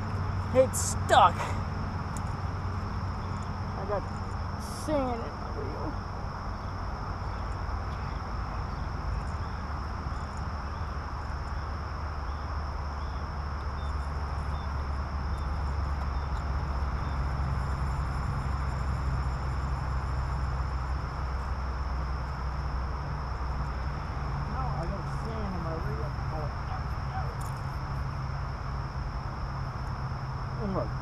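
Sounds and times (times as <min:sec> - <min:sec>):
insects droning: 0:00.0 - 0:31.0
steady low rumble: 0:00.0 - 0:31.0.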